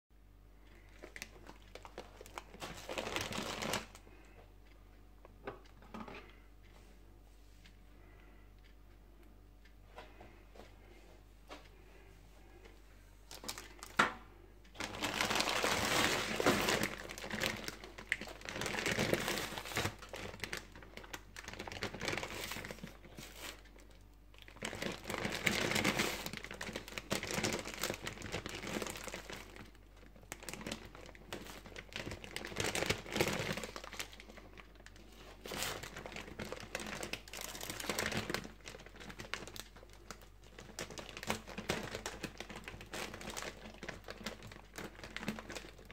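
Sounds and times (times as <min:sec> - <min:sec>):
plastic bag crinkling: 0:00.6 - 0:04.4, 0:13.3 - 0:14.0, 0:14.7 - 0:45.9.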